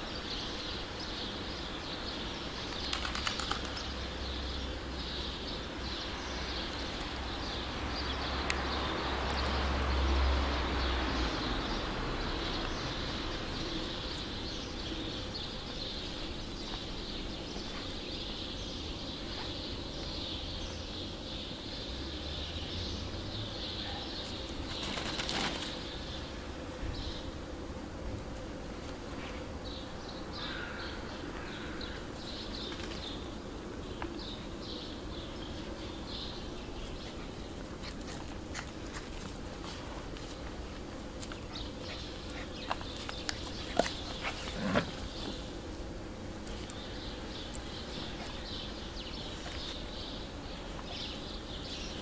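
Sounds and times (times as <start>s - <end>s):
small birds chirping: 0.0s - 27.5s, 29.3s - 52.0s.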